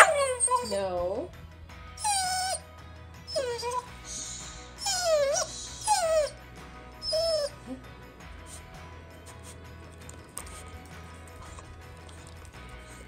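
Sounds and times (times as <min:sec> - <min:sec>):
puppy whining: 0:00.0 - 0:01.2, 0:02.0 - 0:02.7, 0:03.3 - 0:06.4, 0:07.0 - 0:07.9.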